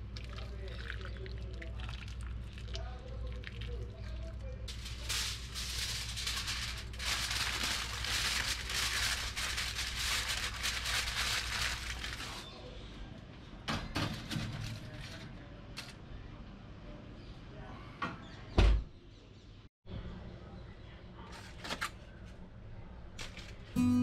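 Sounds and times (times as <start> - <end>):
aluminium foil crinkling: 4.7 - 12.5.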